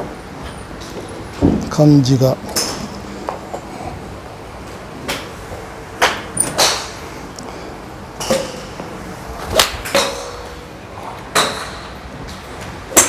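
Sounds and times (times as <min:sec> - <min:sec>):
golf clubs striking balls: 0:02.4 - 0:04.0, 0:04.6 - 0:07.6, 0:08.2 - 0:13.0.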